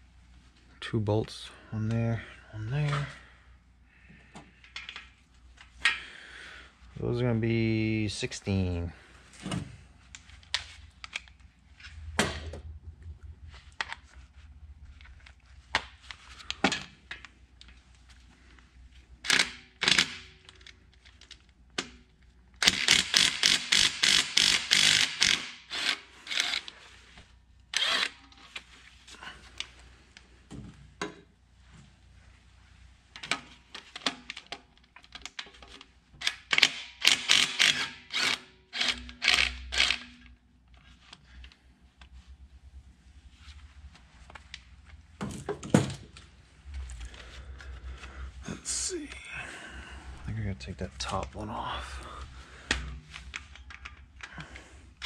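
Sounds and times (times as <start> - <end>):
ratchet wrench clicking: 22.6 - 26.7, 36.6 - 40.0.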